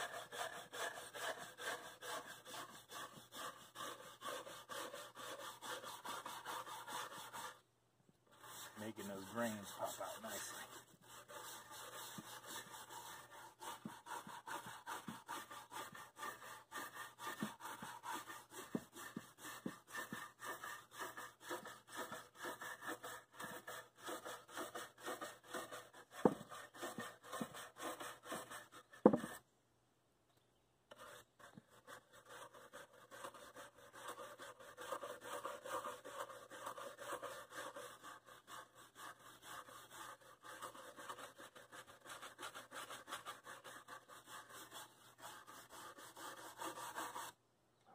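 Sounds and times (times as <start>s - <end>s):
wire brush scrubbing wood: 0.0s - 7.6s, 8.3s - 29.4s, 30.9s - 47.4s
sharp knocks: 29.0s - 29.4s.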